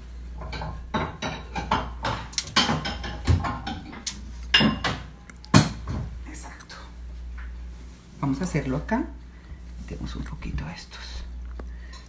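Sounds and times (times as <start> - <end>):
low steady hum: 0.0 - 12.0
crockery and utensils clattering: 0.4 - 6.0.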